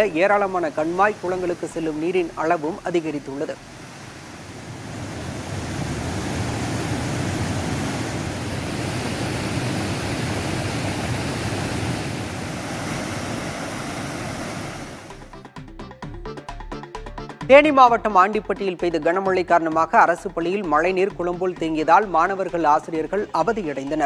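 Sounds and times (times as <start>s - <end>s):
floodwater rushing: 0.0s - 15.3s.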